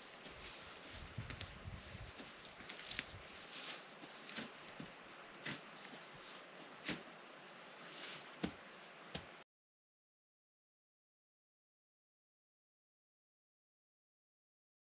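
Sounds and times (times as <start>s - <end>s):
cricket trilling: 0.0s - 9.4s.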